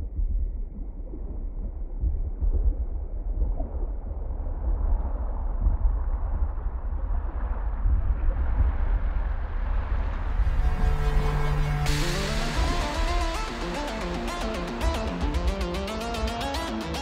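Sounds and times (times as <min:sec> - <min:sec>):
muffled electronic dance music: 0:10.5 - 0:17.0.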